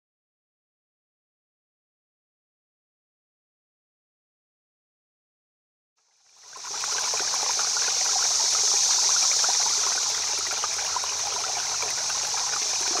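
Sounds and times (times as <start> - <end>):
creek water running: 6.2 - 13.0.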